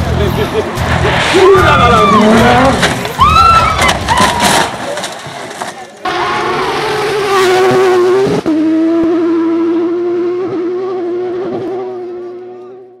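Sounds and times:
rally car engine high revs: 0:02.0 - 0:03.0, 0:06.0 - 0:13.0.

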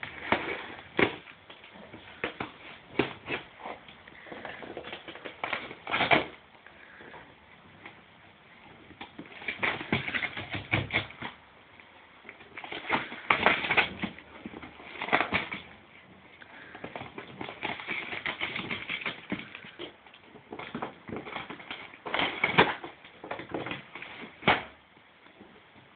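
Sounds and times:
dog tearing cardboard: 0:00.0 - 0:06.4, 0:08.9 - 0:11.4, 0:12.4 - 0:15.8, 0:16.6 - 0:24.8.

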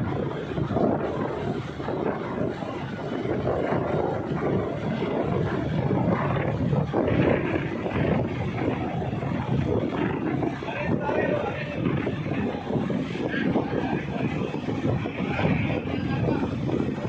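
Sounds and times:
ship rumbling: 0:00.0 - 0:17.0
wind buffeting microphone: 0:00.0 - 0:17.0.

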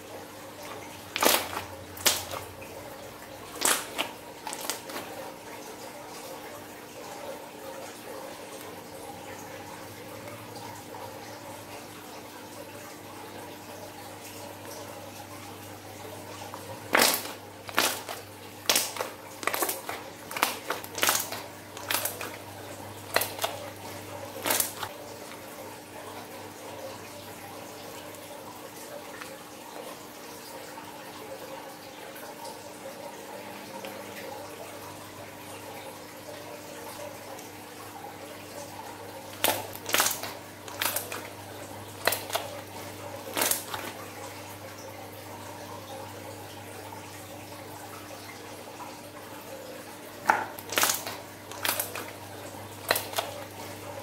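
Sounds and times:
slime squelching: 0:00.6 - 0:02.6, 0:03.4 - 0:05.2, 0:16.5 - 0:25.4, 0:39.2 - 0:41.4, 0:42.0 - 0:44.0, 0:50.2 - 0:52.2, 0:52.8 - 0:53.5
wet pops and clicks: 0:01.1 - 0:02.5, 0:03.6 - 0:05.1, 0:16.9 - 0:22.4, 0:23.1 - 0:23.6, 0:24.4 - 0:24.9, 0:39.3 - 0:41.3, 0:42.0 - 0:42.6, 0:43.3 - 0:44.0, 0:50.2 - 0:52.2, 0:52.8 - 0:53.4
slime squeezed by hand: 0:16.9 - 0:22.4.

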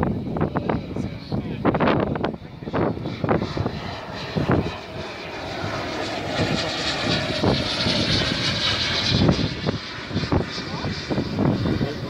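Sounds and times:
model aircraft motor whine: 0:00.0 - 0:12.0.

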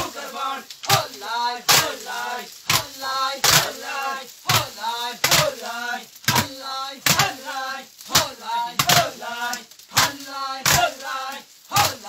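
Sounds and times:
voices chanting: 0:00.0 - 0:12.0
sticks beating maize cobs: 0:00.8 - 0:02.0, 0:02.6 - 0:03.9, 0:04.5 - 0:07.4, 0:08.0 - 0:09.2, 0:09.9 - 0:11.0, 0:11.7 - 0:12.0.

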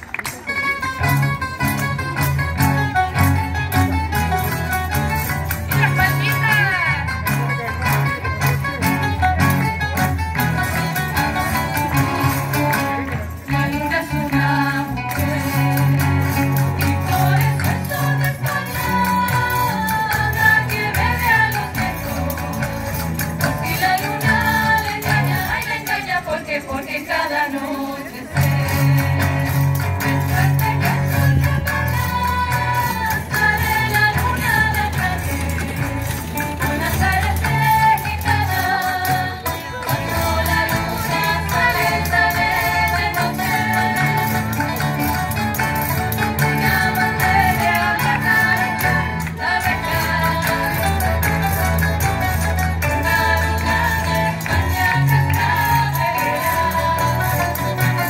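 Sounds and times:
strummed guitars and plucked strings: 0:00.0 - 0:58.0
women singing together: 0:13.5 - 0:16.0, 0:16.8 - 0:22.7, 0:23.5 - 0:44.7, 0:46.3 - 0:51.3, 0:52.8 - 0:58.0.

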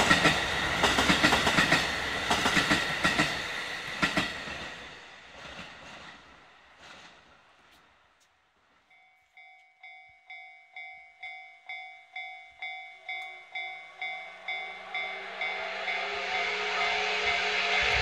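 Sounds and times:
steam hiss: 0:00.0 - 0:07.1, 0:14.2 - 0:18.0
level-crossing alarm ringing: 0:08.9 - 0:18.0
steam locomotive whistle: 0:13.9 - 0:18.0.

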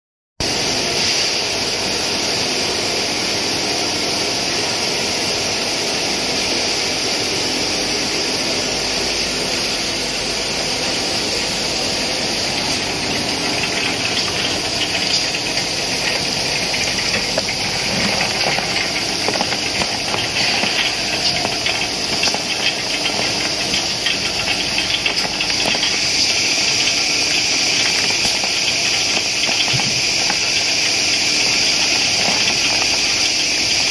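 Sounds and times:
machine hum: 0:06.8 - 0:33.9.

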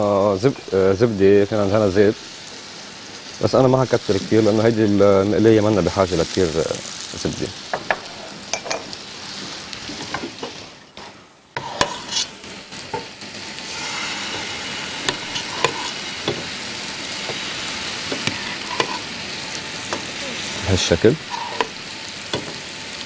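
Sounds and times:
food sizzling in frying pans: 0:00.0 - 0:23.0
pans and utensils clicking: 0:07.8 - 0:09.0, 0:15.0 - 0:16.5, 0:18.1 - 0:19.1, 0:21.3 - 0:22.6.

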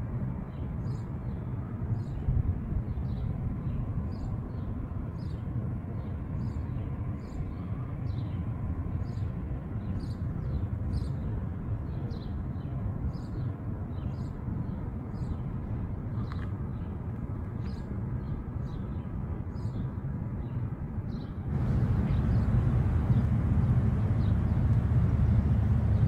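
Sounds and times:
low outdoor rumble: 0:21.4 - 0:26.0.

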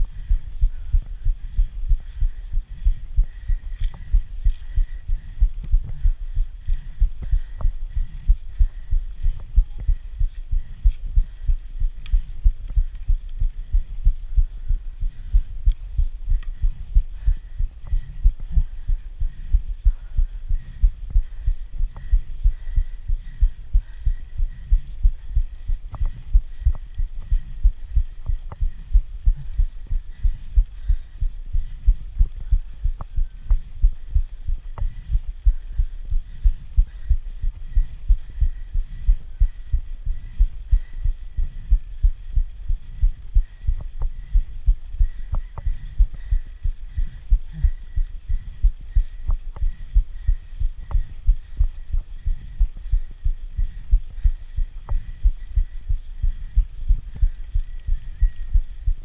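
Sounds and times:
muffled low rhythmic thumping: 0:00.0 - 0:59.0.

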